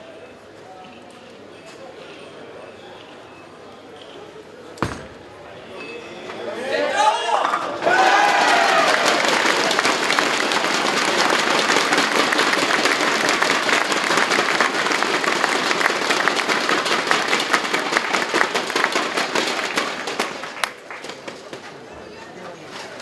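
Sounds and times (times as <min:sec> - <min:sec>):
crowd applauding: 0:07.5 - 0:21.6.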